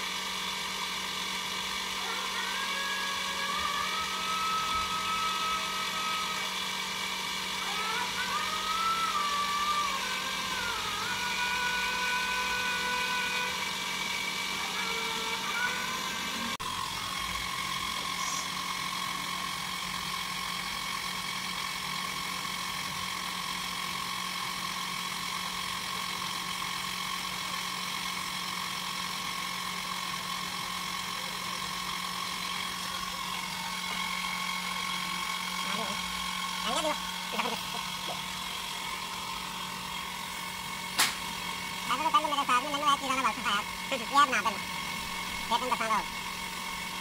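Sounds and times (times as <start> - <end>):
electric motor humming and whining: 0.0 - 47.0.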